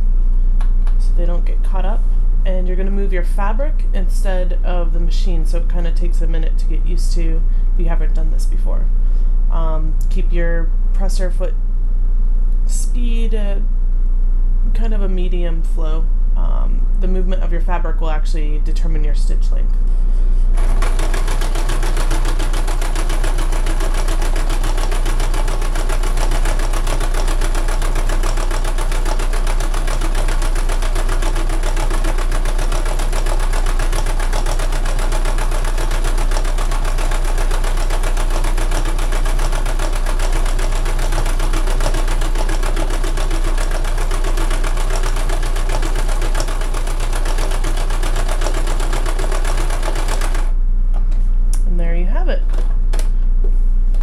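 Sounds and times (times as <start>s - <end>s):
sewing machine running: 20.6s - 50.6s.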